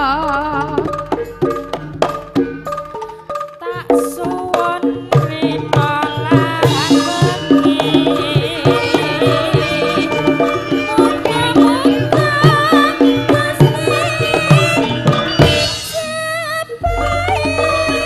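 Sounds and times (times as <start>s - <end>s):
woman singing with vibrato: 0.0s - 1.6s, 2.9s - 18.0s
hand drum strokes: 0.0s - 16.2s.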